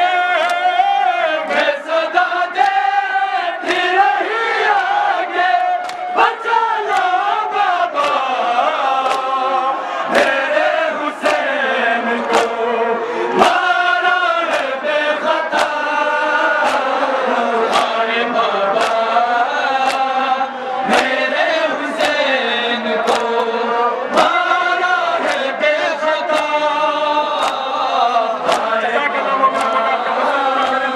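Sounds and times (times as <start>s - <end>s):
men chanting a lament: 0.0s - 30.9s
slaps of chest-beating: 3.6s - 3.9s, 5.8s - 7.4s, 8.0s - 8.3s, 8.9s - 9.4s, 11.2s - 11.5s, 12.2s - 12.6s, 14.4s - 14.8s, 15.5s - 15.9s, 16.6s - 17.0s, 17.6s - 18.1s, 18.7s - 20.2s, 20.9s - 21.2s, 22.0s - 22.3s, 23.0s - 23.5s, 25.2s - 25.5s, 26.2s - 26.6s, 27.3s - 28.8s, 29.5s - 29.8s.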